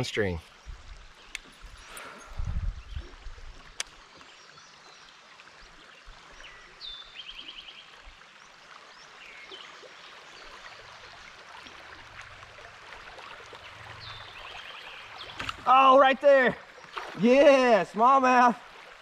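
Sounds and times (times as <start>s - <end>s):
river water over riffles: 0.0s - 19.0s
bird singing and trilling: 14.0s - 17.0s.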